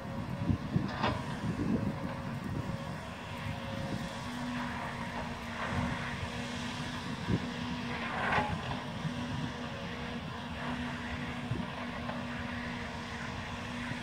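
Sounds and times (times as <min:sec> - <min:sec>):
log loader engine rumble: 0:00.0 - 0:14.0.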